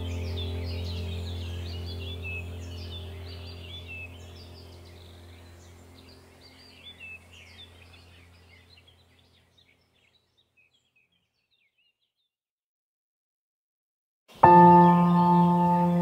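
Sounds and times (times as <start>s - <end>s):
low sustained drone: 0.0s - 9.0s, 14.4s - 16.0s
small birds chirping: 0.0s - 12.4s, 14.3s - 16.0s.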